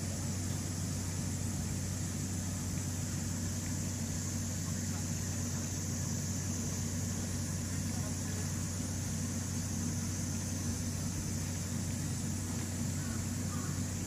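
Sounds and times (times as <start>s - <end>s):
low mechanical hum: 0.0s - 14.0s
faint voices: 4.6s - 10.1s.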